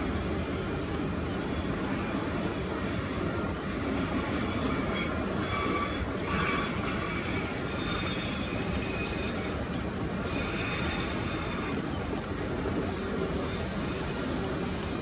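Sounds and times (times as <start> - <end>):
train wheels rumbling on rail: 0.0 - 15.0
high wheel squeals: 0.2 - 12.0.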